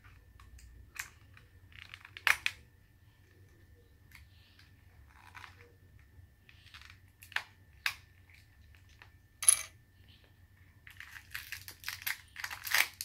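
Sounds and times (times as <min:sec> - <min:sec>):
plastic wrapping crinkling: 0:10.8 - 0:13.0.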